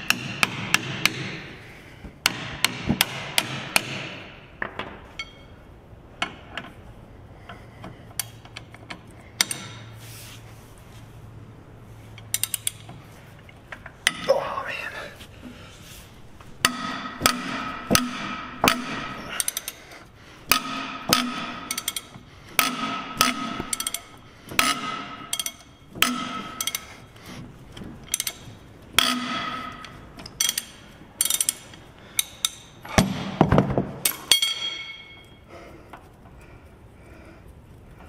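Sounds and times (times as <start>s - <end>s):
ratchet wrench clicking: 12.2s - 12.9s, 17.2s - 19.8s, 20.5s - 26.9s, 28.0s - 28.4s, 29.0s - 32.7s.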